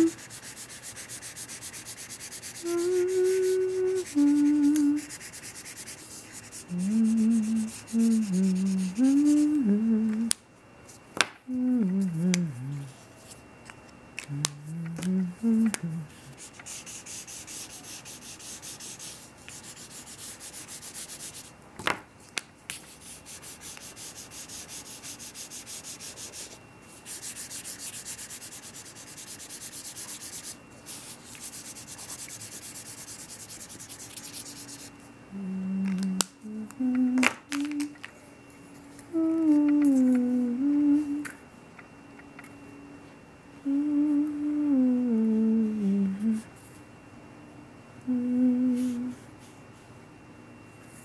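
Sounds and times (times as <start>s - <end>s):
markers scribbling on paper: 0.0s - 9.5s, 16.2s - 21.5s, 22.7s - 34.9s.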